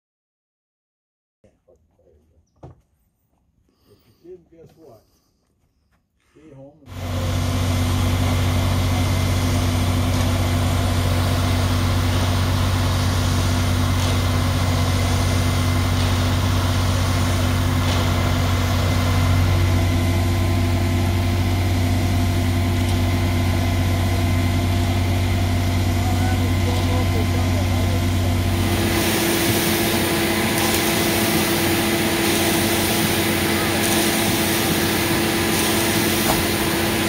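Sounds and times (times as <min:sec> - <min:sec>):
diesel truck engines droning: 0:06.9 - 0:37.0.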